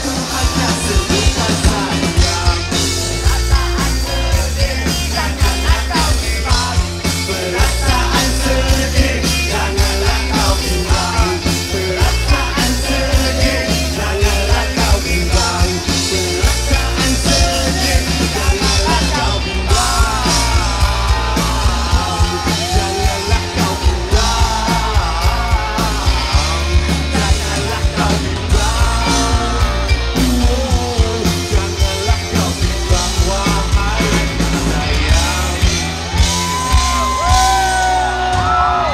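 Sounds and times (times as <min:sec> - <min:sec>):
live rock band playing: 0:00.0 - 0:38.9
person singing: 0:00.0 - 0:38.9.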